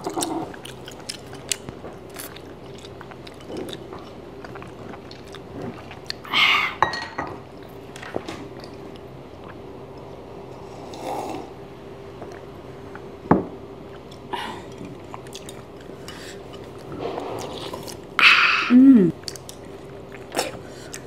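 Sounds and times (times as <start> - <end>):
quiet chewing: 0.0 - 6.3, 13.9 - 18.2, 19.1 - 21.0
faint steady hum: 0.0 - 21.0.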